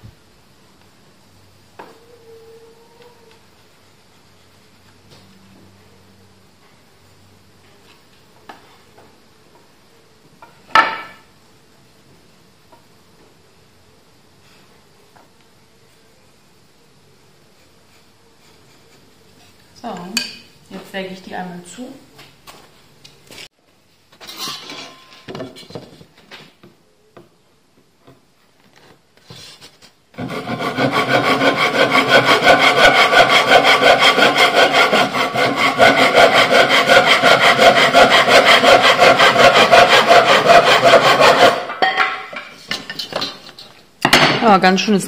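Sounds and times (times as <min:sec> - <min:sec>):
handsaw cutting wood: 0:30.2 - 0:41.7.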